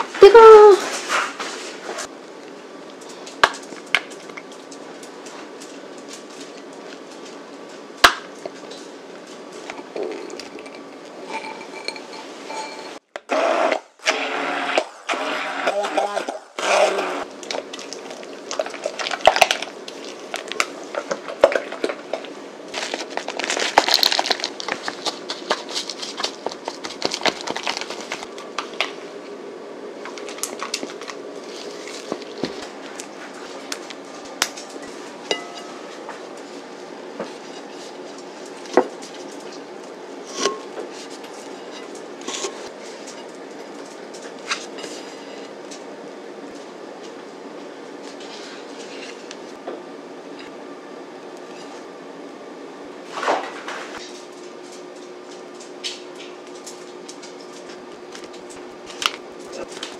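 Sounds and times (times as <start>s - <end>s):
utensils clinking on glass bowl: 10.0s - 13.0s, 34.8s - 36.0s.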